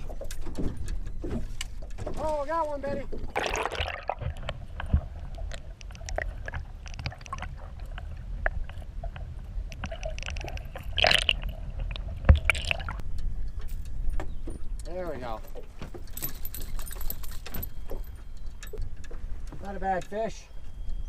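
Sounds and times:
water gurgling and sloshing: 0.0 - 19.6
steady low rumble: 4.1 - 15.8.

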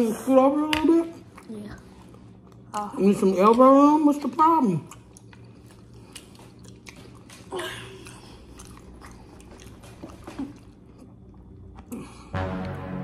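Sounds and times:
people chewing food: 1.0 - 12.4.

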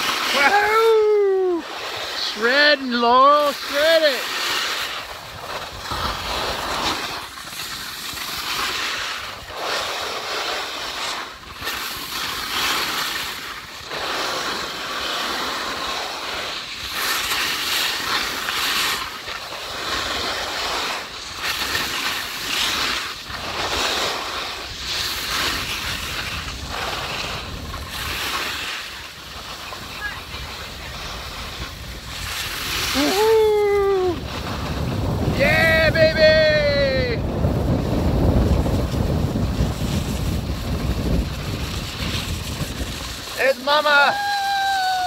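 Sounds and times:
skis hissing over snow: 0.0 - 45.0
wind buffeting microphone: 24.6 - 43.4.

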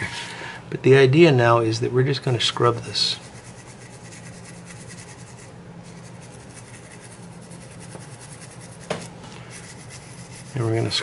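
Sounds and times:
toothbrush scrubbing wood: 2.6 - 11.0.

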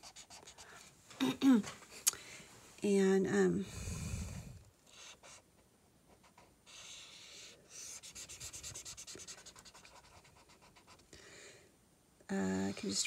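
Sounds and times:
marker scratching on paper: 0.0 - 0.7, 6.1 - 11.0.

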